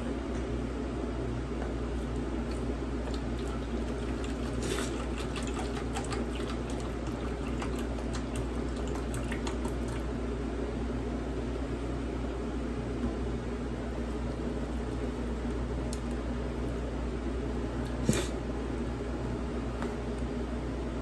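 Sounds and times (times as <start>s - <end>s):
broth pouring and splashing: 3.1s - 10.1s.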